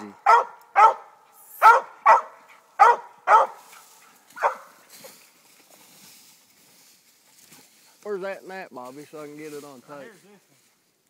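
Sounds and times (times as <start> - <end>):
dog barking: 0.2 - 3.8, 4.4 - 4.8.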